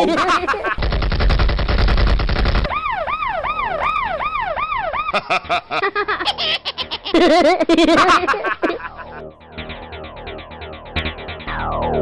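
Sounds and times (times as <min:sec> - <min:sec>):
rapid automatic gunfire: 0:00.7 - 0:02.7
sharp clicks: 0:00.8 - 0:02.7
up-and-down siren: 0:02.7 - 0:05.4, 0:09.8 - 0:12.0.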